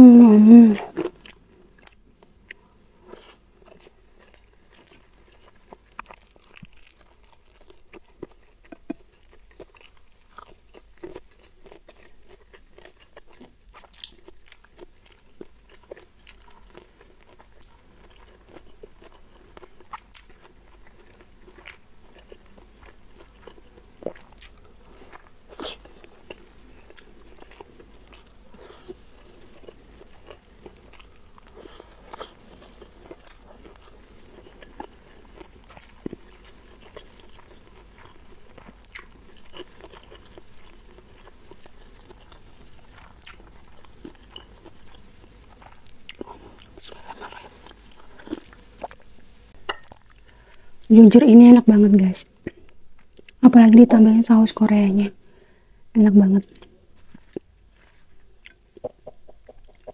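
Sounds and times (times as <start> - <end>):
chewing fried food: 0.8 - 51.0, 52.2 - 53.5, 56.5 - 59.9.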